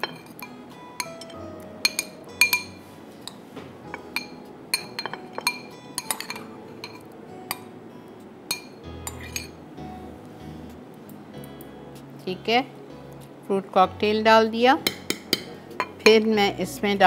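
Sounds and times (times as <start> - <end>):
spoon clinking against bowls: 0.0 - 7.7, 8.5 - 9.6.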